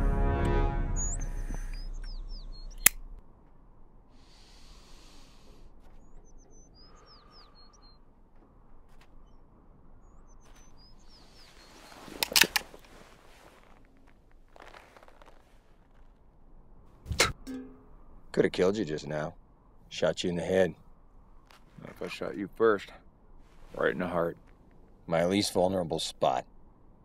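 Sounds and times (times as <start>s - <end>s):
music: 0.0s - 2.1s
small birds chirping: 1.0s - 3.0s, 4.1s - 15.6s
revolver being cocked: 12.2s - 12.7s.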